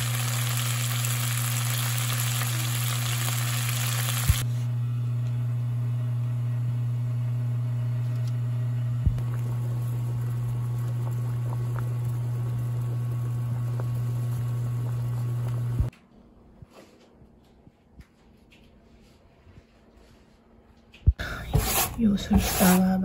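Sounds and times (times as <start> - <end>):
low hum: 0.0 - 16.6.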